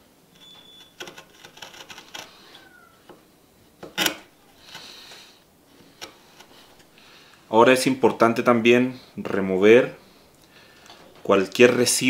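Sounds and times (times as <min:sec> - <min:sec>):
squeak of steel on wood: 0:00.3 - 0:03.1
chisel scraping through wood: 0:00.4 - 0:03.2, 0:03.8 - 0:07.0.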